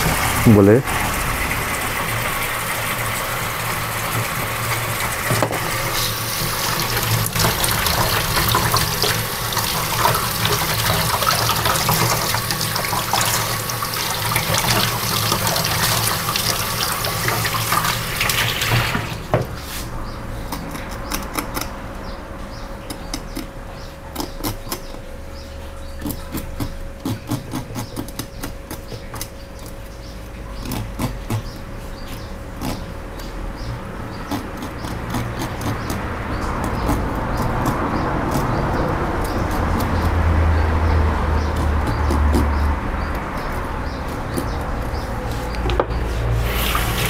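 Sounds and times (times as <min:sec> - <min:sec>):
tap water running into sink: 0:00.0 - 0:19.5, 0:45.6 - 0:47.0.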